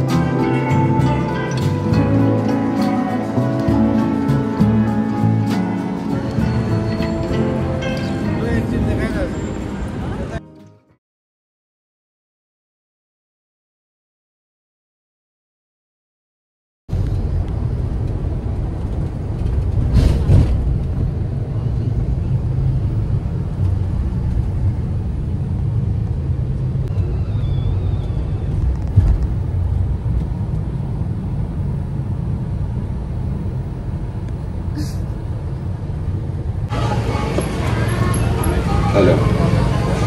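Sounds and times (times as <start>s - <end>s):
vehicle rumbling: 0.0s - 10.7s, 16.9s - 40.0s.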